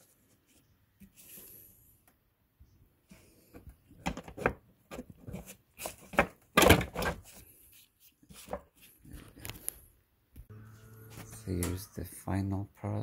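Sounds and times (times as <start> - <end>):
plastic parts knocking and scraping: 3.5 - 7.4.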